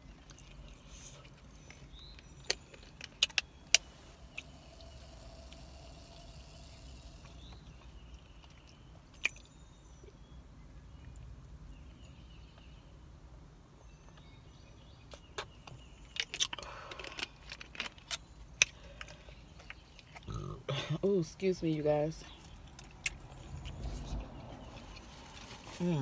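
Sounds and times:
low hum: 0:03.6 - 0:08.8
drinking from plastic bottle: 0:04.2 - 0:08.6.

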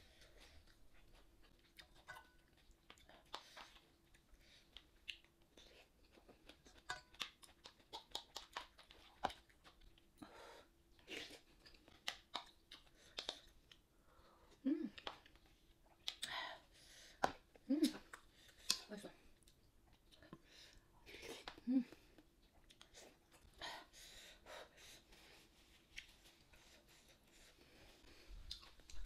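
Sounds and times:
close-up chewing with crunches: 0:00.1 - 0:10.2, 0:10.9 - 0:13.9, 0:14.9 - 0:16.4, 0:19.4 - 0:23.6, 0:25.4 - 0:29.0.

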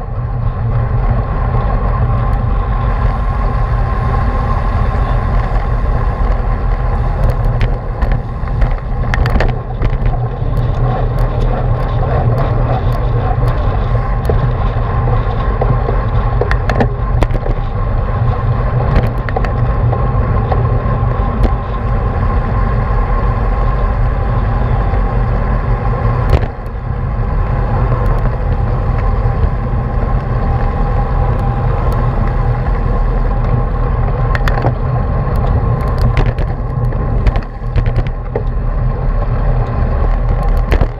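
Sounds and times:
bike clicks and knocks: 0:00.0 - 0:40.9
tyre and road noise: 0:00.0 - 0:40.9
wind rushing over microphone: 0:00.0 - 0:40.9.

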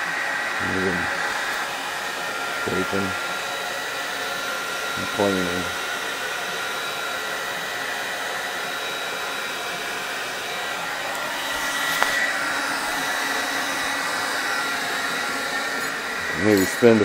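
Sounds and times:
blower noise with high whine: 0:00.0 - 0:17.0.

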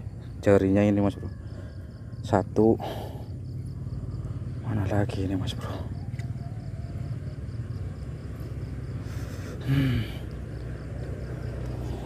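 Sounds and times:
steady low rumble: 0:00.0 - 0:12.0
man grunting: 0:09.6 - 0:10.2.

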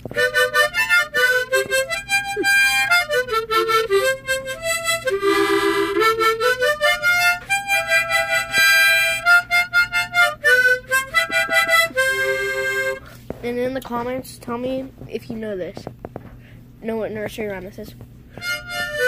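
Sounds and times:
pulsing harmonica chord: 0:00.0 - 0:13.3, 0:18.3 - 0:19.0
harmonica melody: 0:00.0 - 0:13.6, 0:18.3 - 0:19.0.

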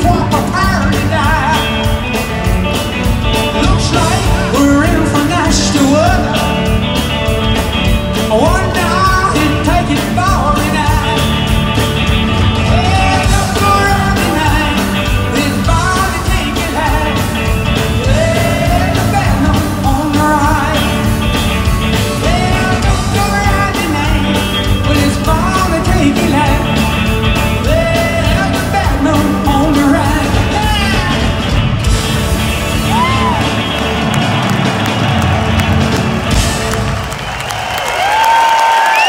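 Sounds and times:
singer's amplified vocal: 0:00.0 - 0:01.9, 0:03.5 - 0:06.7, 0:08.2 - 0:11.4, 0:12.6 - 0:21.2, 0:22.1 - 0:26.9, 0:27.6 - 0:31.4
drums: 0:00.0 - 0:39.0
electric guitars: 0:00.0 - 0:39.0.

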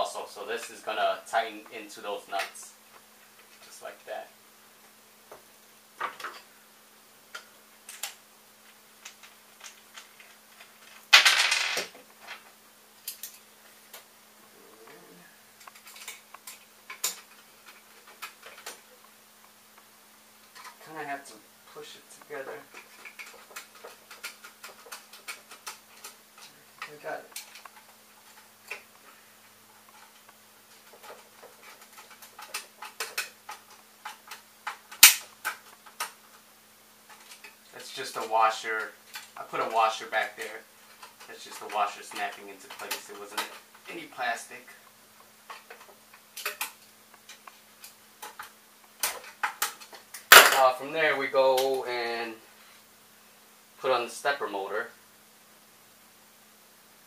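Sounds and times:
small tools clicking and tapping: 0:07.3 - 0:08.2, 0:09.0 - 0:11.2, 0:15.6 - 0:19.1, 0:22.5 - 0:36.4, 0:37.1 - 0:39.7, 0:40.3 - 0:44.0, 0:44.8 - 0:50.6
hardware clattering: 0:09.0 - 0:12.5, 0:29.8 - 0:36.2, 0:45.4 - 0:50.8.

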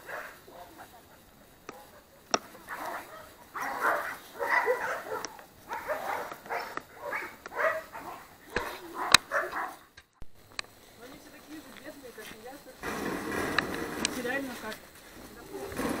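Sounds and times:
dogs barking: 0:00.0 - 0:10.0.

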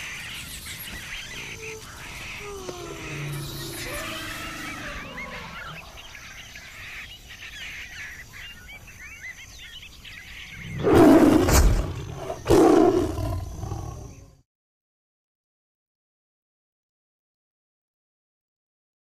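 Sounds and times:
birds chirping faintly: 0:00.0 - 0:14.4
lion roaring: 0:01.4 - 0:06.1, 0:10.6 - 0:14.4.

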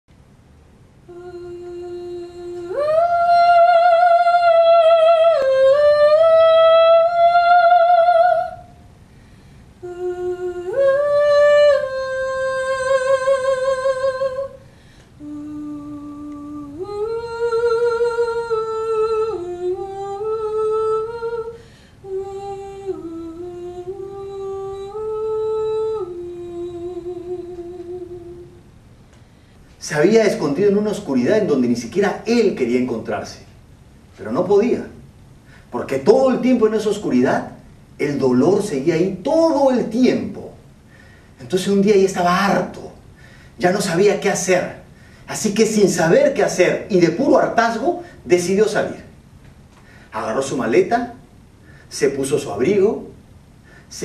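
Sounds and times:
woman singing wordless melody: 0:00.8 - 0:32.6.

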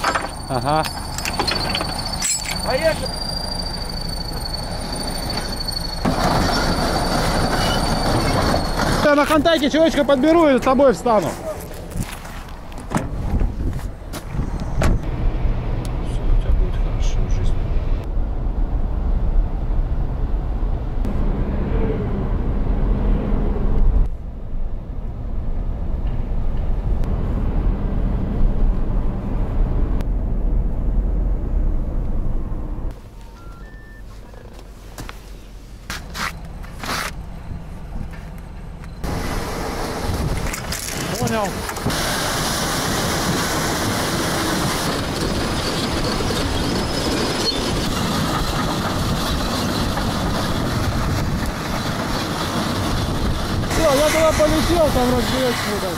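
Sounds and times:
steel tracks clanking and squealing: 0:00.0 - 0:11.5, 0:33.1 - 0:34.7, 0:36.2 - 0:55.9
road noise and engine hum: 0:00.0 - 0:55.9.

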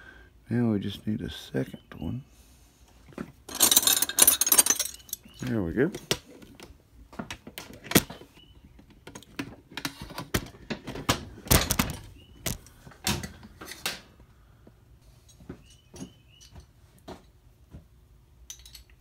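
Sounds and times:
metal tools clinking: 0:03.4 - 0:06.1, 0:18.5 - 0:19.0.

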